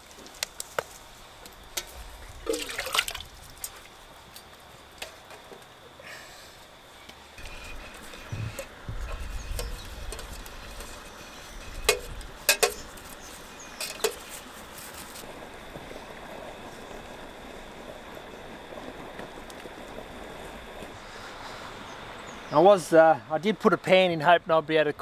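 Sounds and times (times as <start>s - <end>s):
faint hiss: 0.0s - 25.0s
metal spoon stirring in pot: 7.4s - 13.0s.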